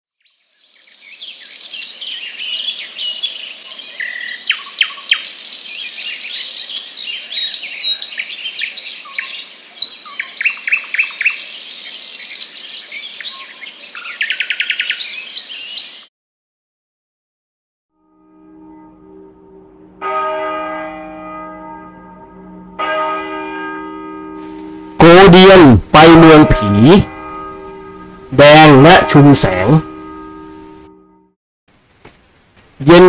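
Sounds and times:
birds chirping and singing: 0.2s - 16.1s.

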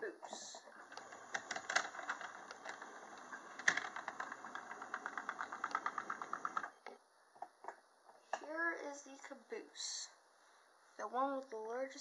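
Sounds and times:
faint motor hum: 0.0s - 7.5s
model train wheels clicking: 0.9s - 6.7s.

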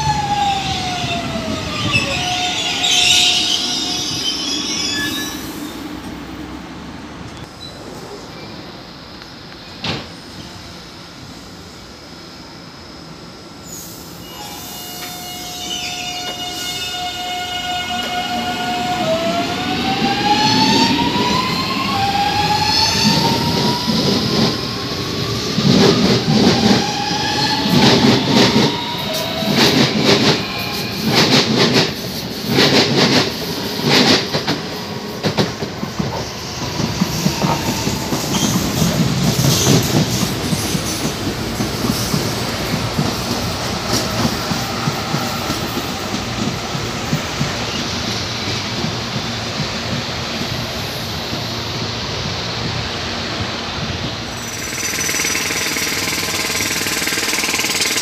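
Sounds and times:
train running roar: 0.0s - 58.0s
train traction motors whining: 53.8s - 58.0s
train wheels clacking over rail joints: 54.0s - 58.0s.

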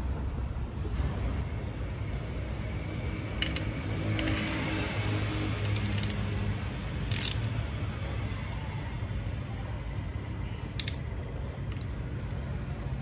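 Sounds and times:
sharp metallic click: 3.4s - 4.6s, 7.1s - 7.4s, 10.8s - 11.0s
ratchet wrench clicking: 3.4s - 4.8s, 5.4s - 6.3s, 6.9s - 7.6s, 10.7s - 11.1s.

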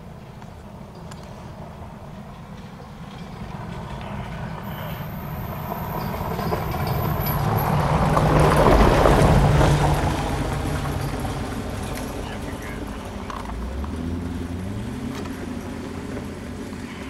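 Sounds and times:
vehicle driving past: 0.8s - 17.0s.

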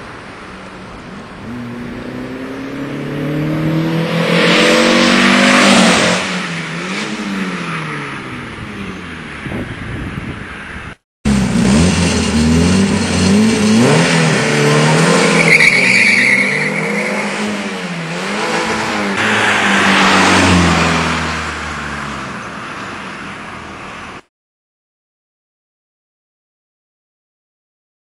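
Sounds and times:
car engine accelerating: 0.4s - 9.6s, 11.3s - 24.1s.

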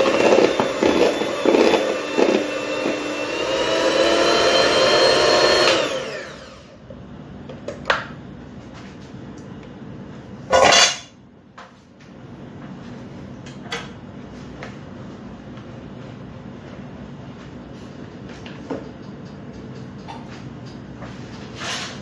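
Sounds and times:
kitchen utensils clattering: 10.5s - 11.2s.

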